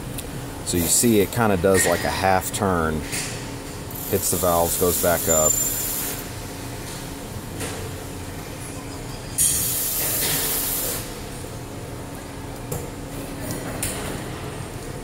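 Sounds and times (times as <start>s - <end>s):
steady low hum: 0.0s - 15.0s
loud hiss: 4.0s - 6.3s, 9.5s - 11.1s.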